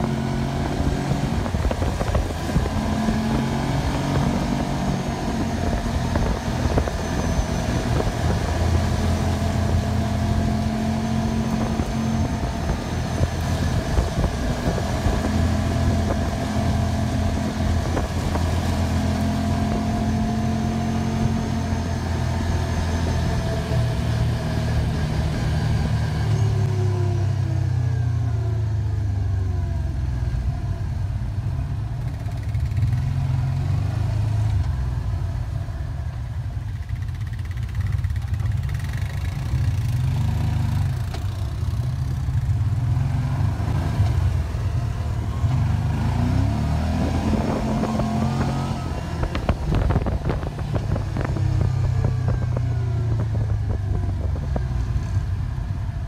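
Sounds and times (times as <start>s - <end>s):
wind rush: 0.0s - 9.0s, 11.3s - 19.0s, 44.3s - 56.0s
vehicle engine running: 0.0s - 56.0s.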